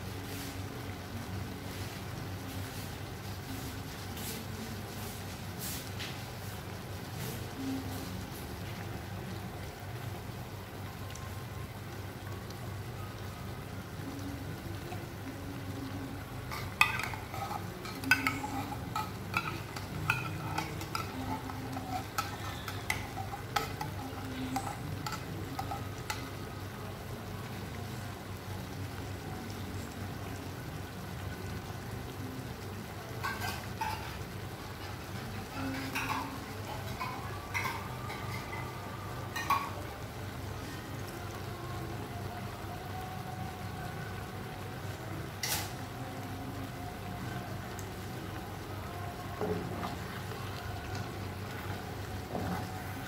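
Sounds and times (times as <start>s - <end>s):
stew simmering and sizzling: 0.0s - 53.0s
spoon scraping a pan: 16.4s - 26.4s, 33.2s - 39.8s.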